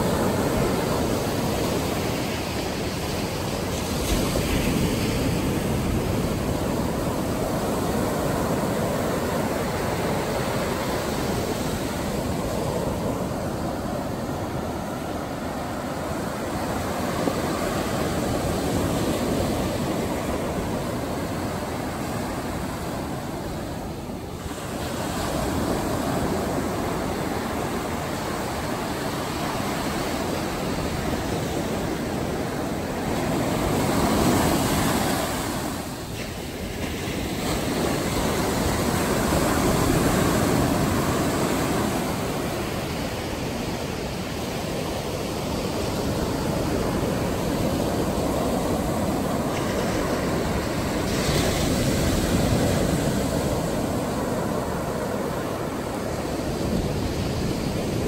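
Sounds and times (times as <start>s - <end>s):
surf breaking on sand: 0.0s - 58.0s.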